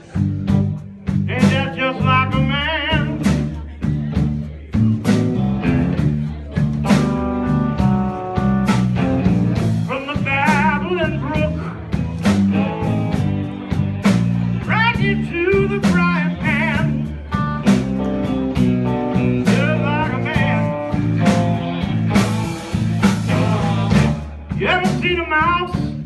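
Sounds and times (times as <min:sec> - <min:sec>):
blues band playing live: 0:00.0 - 0:26.0.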